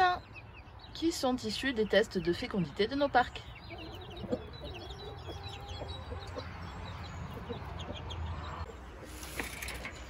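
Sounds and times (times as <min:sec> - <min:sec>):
chicks peeping: 0:00.0 - 0:10.0
hen clucking: 0:01.7 - 0:08.7.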